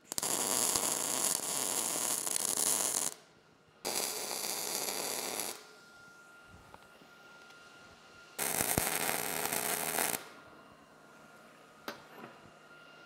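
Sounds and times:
welding arc crackling: 0.0 - 3.2, 3.9 - 5.7, 8.4 - 10.3.

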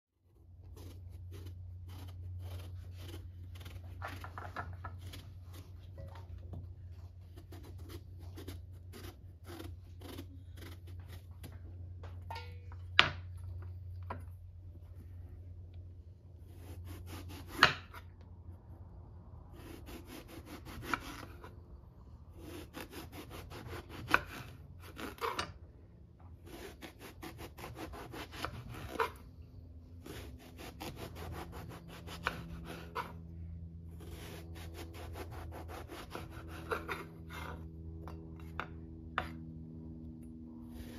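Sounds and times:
knife scraping eggplant skin: 0.6 - 6.2, 7.0 - 11.6, 16.4 - 18.1, 19.5 - 21.7, 22.3 - 25.6, 26.4 - 29.3, 30.0 - 33.2, 33.9 - 39.4.

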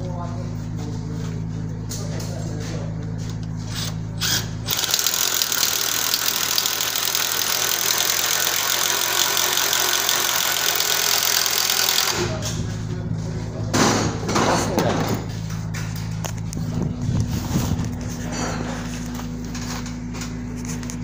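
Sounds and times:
power drill boring into timber: 4.2 - 12.2.

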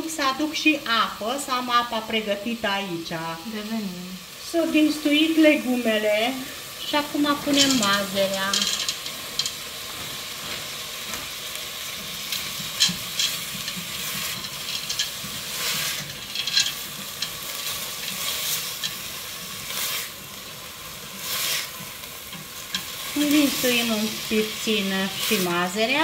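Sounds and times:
vegetables sizzling in hot oil: 0.0 - 26.0
spatula scraping a pot: 12.0 - 20.4, 21.1 - 23.1.

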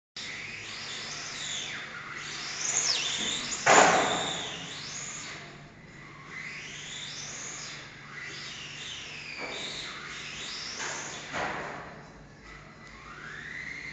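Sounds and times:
model car motor whining: 0.3 - 11.3, 12.8 - 13.9.

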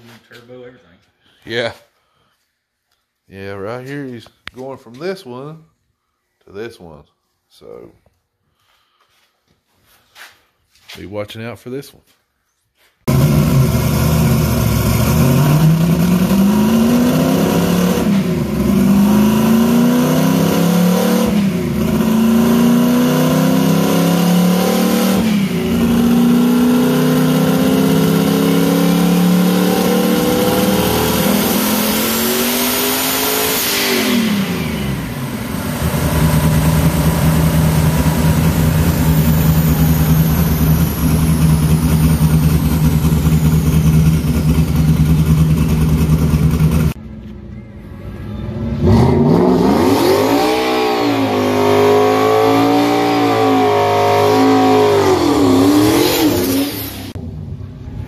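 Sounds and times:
engine revving through gears: 13.1 - 47.0, 48.5 - 57.2
engine idling: 34.6 - 48.6.

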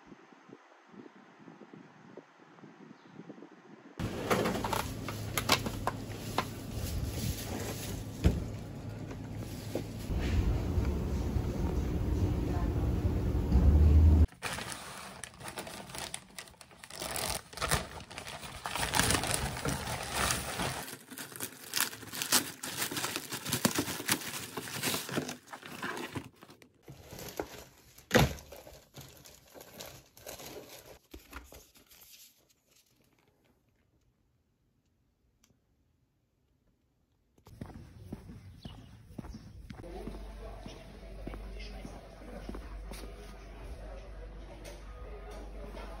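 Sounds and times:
plastic packaging crinkling: 14.3 - 33.7.

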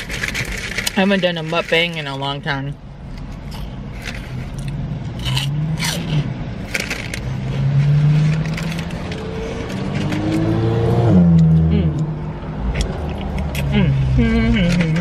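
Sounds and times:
paper food wrapper crinkling: 0.0 - 2.5
closed-mouth humming: 3.2 - 15.0.

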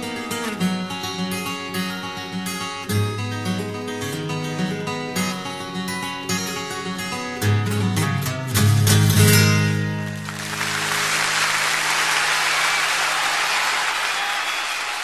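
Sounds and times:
acoustic guitar strumming chords: 0.0 - 12.0
audience applause: 10.1 - 15.0.

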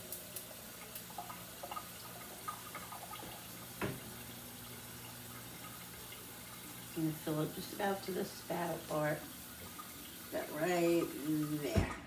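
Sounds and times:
tap water filling pitcher with ice: 0.0 - 12.0.

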